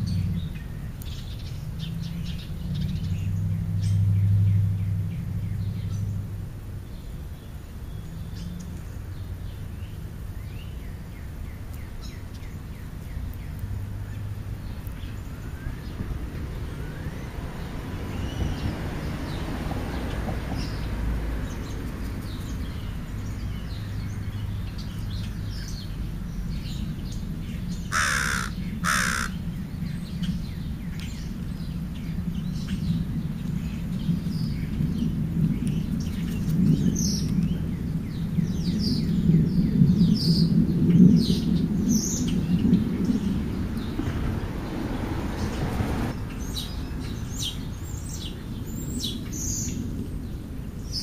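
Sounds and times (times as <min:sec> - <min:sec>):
small birds chirping: 0:00.0 - 0:51.0
crow cawing: 0:27.9 - 0:29.4.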